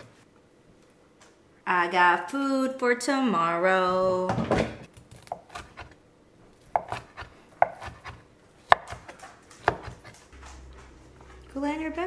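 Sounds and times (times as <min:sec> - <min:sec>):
knife slicing steak on wooden board: 0:06.8 - 0:10.1
knife tapping cutting board: 0:06.8 - 0:10.1.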